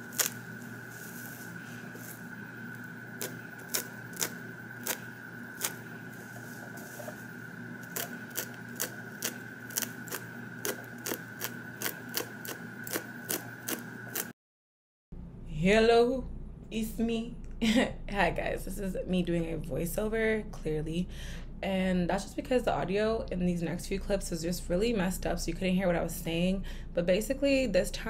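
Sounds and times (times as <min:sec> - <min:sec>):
high-pitched whine: 0:00.0 - 0:12.1.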